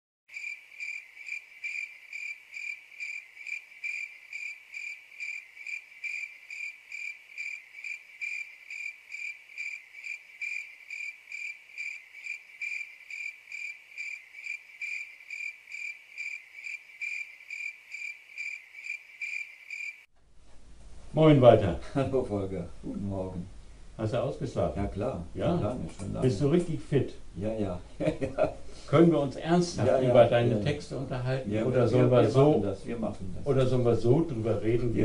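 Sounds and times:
high cricket-like chirping: 0:00.3 - 0:20.1.

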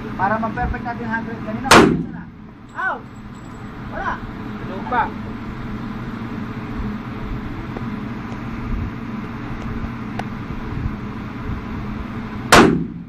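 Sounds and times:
ventilation fans humming: 0:00.0 - 0:13.0.

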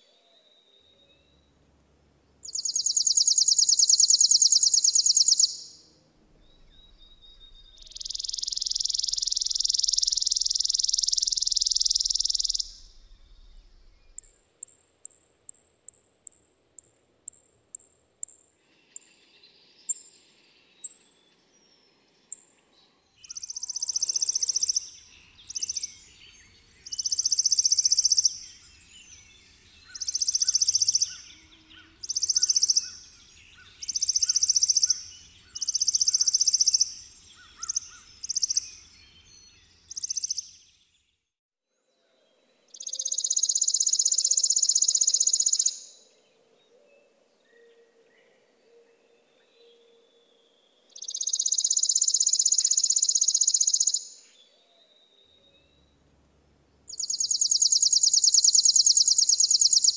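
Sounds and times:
sparrow singing high trill: 0:02.4 - 0:19.1, 0:23.2 - 0:40.7, 0:42.8 - 0:46.0, 0:51.0 - 0:54.3, 0:56.9 - 0:59.9.

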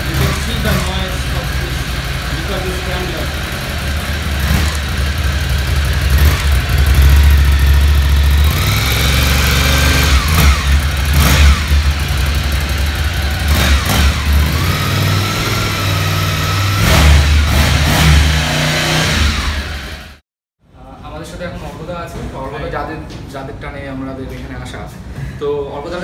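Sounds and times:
motorcycle engine idling and revving: 0:00.0 - 0:20.2.

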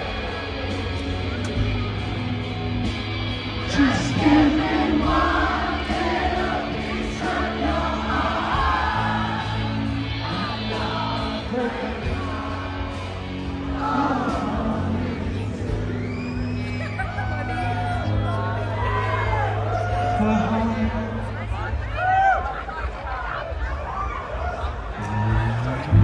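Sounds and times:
drums: 0:00.0 - 0:26.0
person singing: 0:03.6 - 0:16.4.

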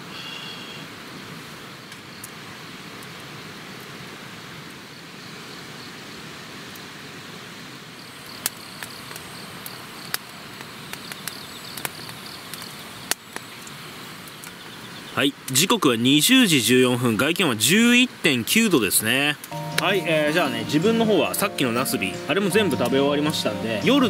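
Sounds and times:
insects chirping: 0:08.0 - 0:10.2
wood fire crackling and popping: 0:08.2 - 0:14.6.

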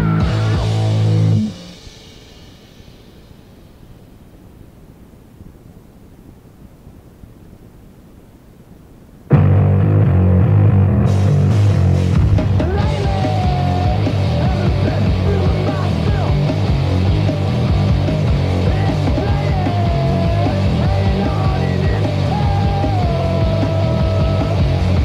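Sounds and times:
punk rock band playing: 0:00.0 - 0:03.5, 0:09.3 - 0:25.0.

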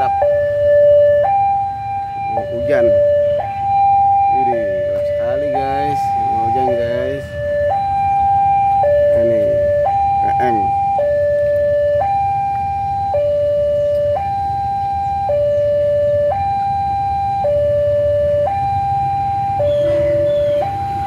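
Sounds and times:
level crossing two-tone alarm: 0:00.0 - 0:21.0.

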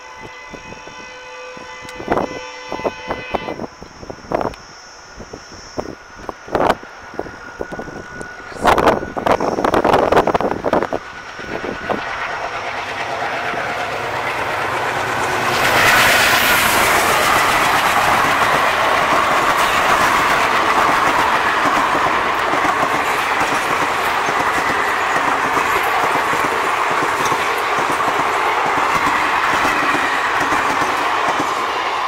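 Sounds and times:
diesel locomotive passing: 0:00.0 - 0:32.0
rushing air: 0:03.6 - 0:32.0
train wheels clattering over rail joints: 0:06.2 - 0:32.0.

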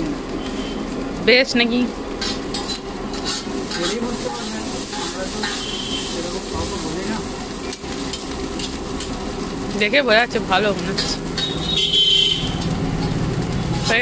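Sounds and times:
noodles sizzling on griddle: 0:00.0 - 0:14.0
metal spatulas scraping and clicking: 0:02.2 - 0:04.1.

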